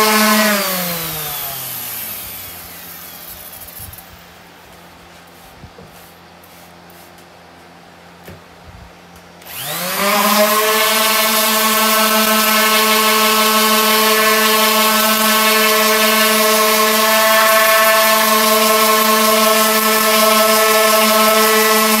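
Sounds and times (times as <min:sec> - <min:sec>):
small electric motor running: 0:00.0 - 0:04.2, 0:09.4 - 0:22.0.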